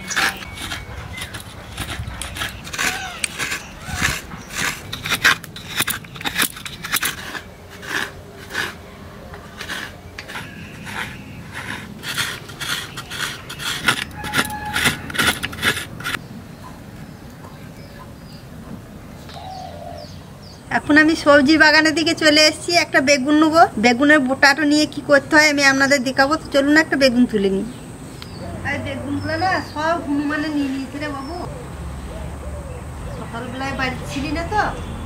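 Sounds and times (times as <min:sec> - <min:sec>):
coconut scraping on serrated blade: 0:00.0 - 0:16.2.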